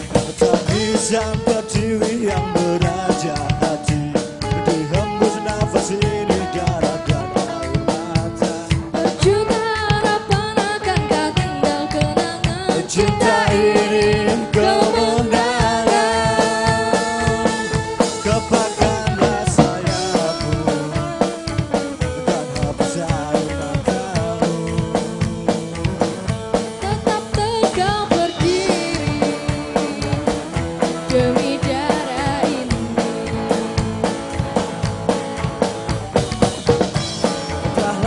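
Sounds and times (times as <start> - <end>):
drum kit beat: 0.0 - 38.0
electric guitar: 0.0 - 38.0
woman singing into a microphone: 8.8 - 19.7, 26.8 - 34.1, 37.6 - 38.0.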